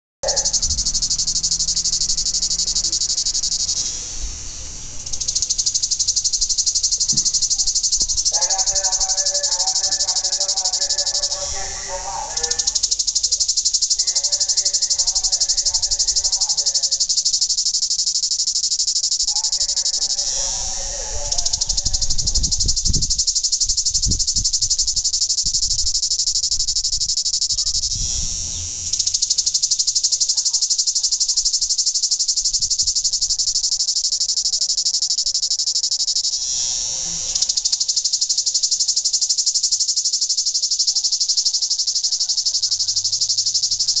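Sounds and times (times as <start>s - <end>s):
cicada buzzing: 0.2s - 44.0s.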